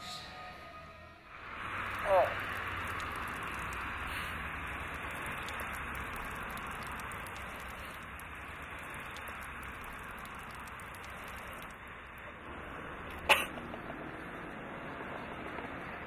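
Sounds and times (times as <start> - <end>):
liquid trickling into a pot: 1.3 - 13.3.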